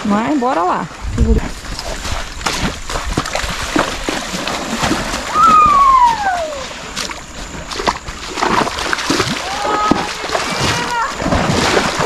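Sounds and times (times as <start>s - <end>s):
hooves splashing in water: 0.0s - 12.0s
falling whistle-like tone: 5.3s - 6.7s.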